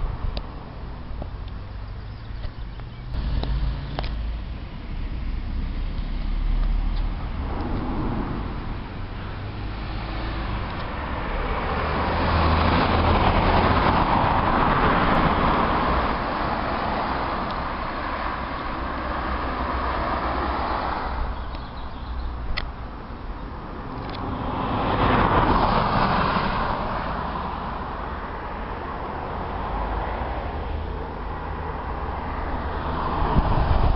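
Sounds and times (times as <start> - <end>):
low rumble of traffic: 0.0 - 33.9
car driving past: 3.0 - 22.2.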